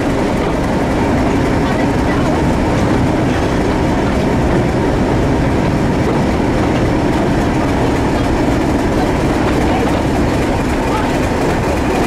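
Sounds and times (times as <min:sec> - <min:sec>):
diesel locomotive engine drone: 0:00.0 - 0:12.0
train wheels on rails: 0:00.0 - 0:12.0.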